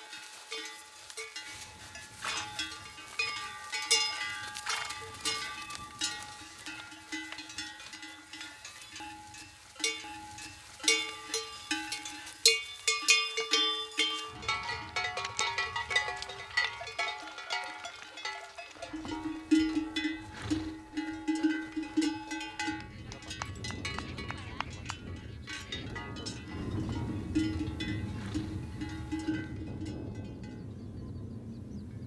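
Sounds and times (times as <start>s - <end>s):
animal bells clanking: 0.0s - 32.0s.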